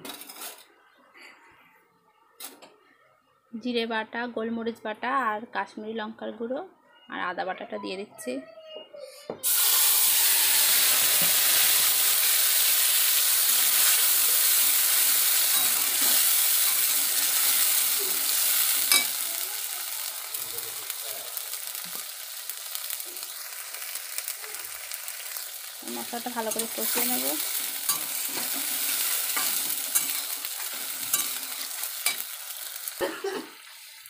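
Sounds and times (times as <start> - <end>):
spice paste sizzling in hot oil: 9.4 - 34.0
metal spatula scraping: 13.6 - 19.2, 26.0 - 32.6.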